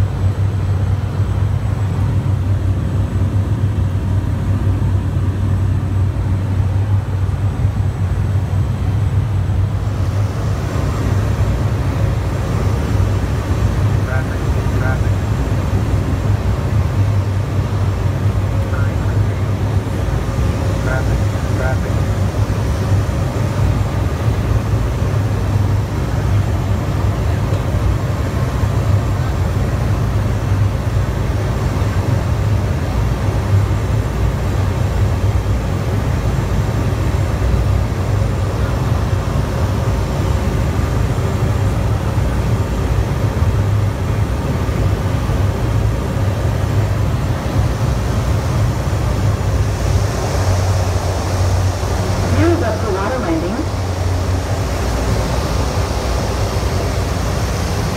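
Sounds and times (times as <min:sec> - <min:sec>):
turboprop engine droning: 0:00.0 - 0:57.9.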